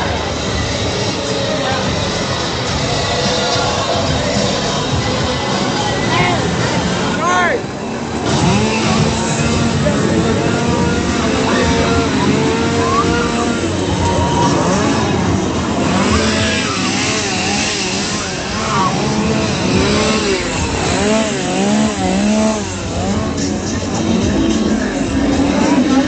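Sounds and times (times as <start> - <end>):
crowd noise: 0.0 - 26.0
small engine revving: 7.9 - 26.0.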